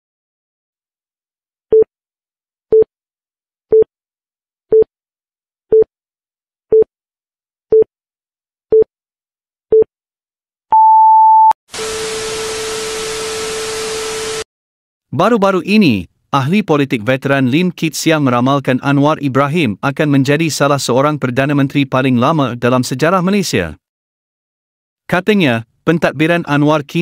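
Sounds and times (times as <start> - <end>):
longer higher beep: 10.7 - 11.6
short electronic beeps: 10.7 - 11.6
static hiss: 11.8 - 14.4.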